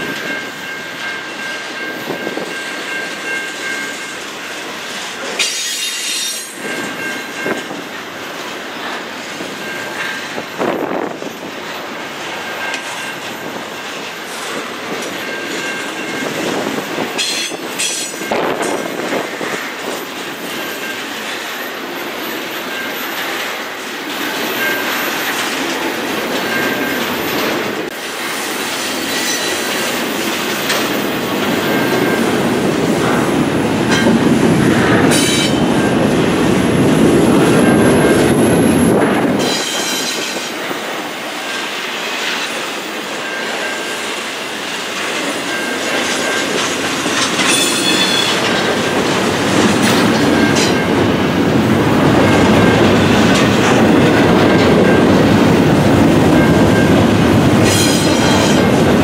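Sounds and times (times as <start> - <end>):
freight train rumbling past: 0.0 - 59.0
wheels clicking over rail joints: 0.0 - 59.0
high wheel squeals: 5.4 - 7.0, 47.3 - 48.6.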